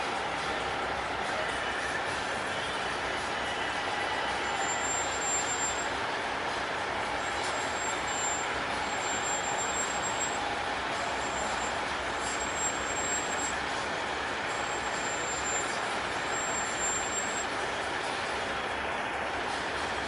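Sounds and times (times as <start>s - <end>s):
diesel trucks running: 0.0s - 20.0s
thin high whistle: 4.3s - 5.9s, 7.5s - 13.6s, 14.5s - 17.6s.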